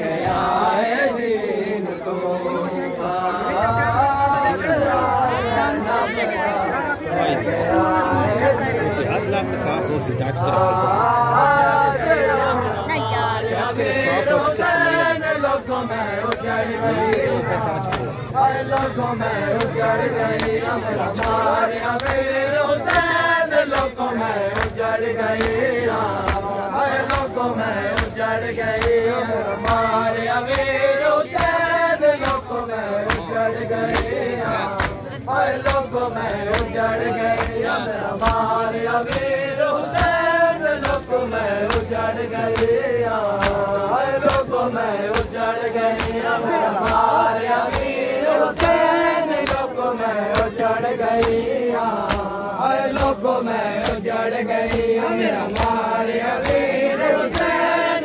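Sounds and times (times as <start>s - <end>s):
men chanting in unison: 0.0s - 58.0s
hands slapping chests: 19.6s - 22.3s, 23.7s - 31.6s, 32.2s - 35.0s, 35.6s - 36.7s, 37.3s - 57.7s.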